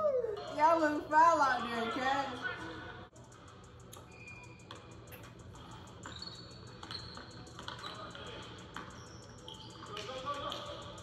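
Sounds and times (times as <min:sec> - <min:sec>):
sneakers squeaking: 0:03.4 - 0:11.0.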